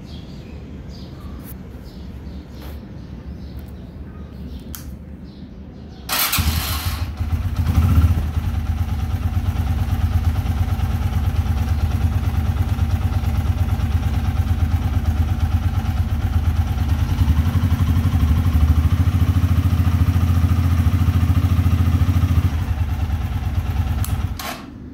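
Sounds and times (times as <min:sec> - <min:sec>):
motorcycle engine starting and idling: 0:06.1 - 0:24.9.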